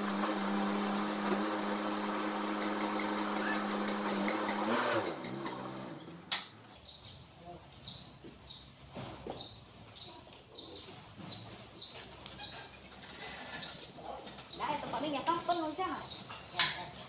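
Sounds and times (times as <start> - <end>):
engine hum: 0.0 - 6.9
bird chirping: 5.9 - 17.0.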